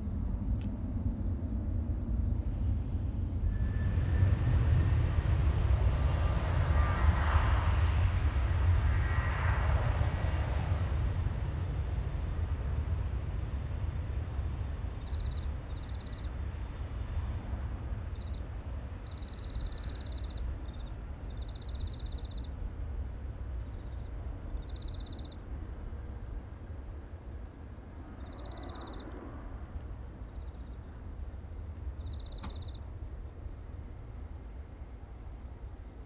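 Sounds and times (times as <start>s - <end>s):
distant jet engine rumble: 0.0s - 36.0s
high-pitched insect trills: 15.0s - 16.3s, 19.0s - 22.5s, 23.7s - 25.4s, 28.2s - 29.1s, 30.2s - 32.8s.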